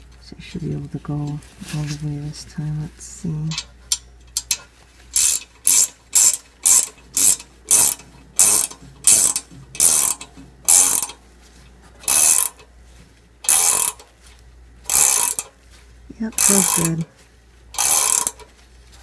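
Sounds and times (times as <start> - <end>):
ratcheting wrench clicking: 3.5 - 11.2, 12.0 - 12.7, 13.4 - 14.1, 14.9 - 15.6, 16.3 - 17.1, 17.7 - 18.5.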